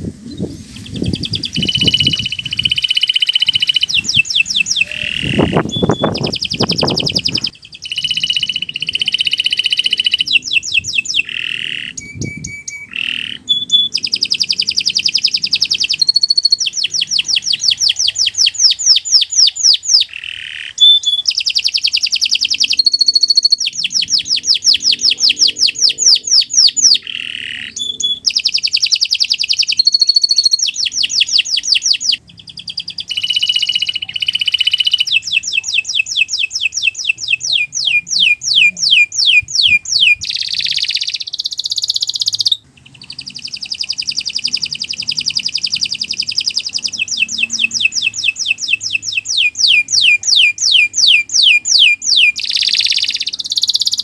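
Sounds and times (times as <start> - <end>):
canary singing trills: 0.2 - 54.0.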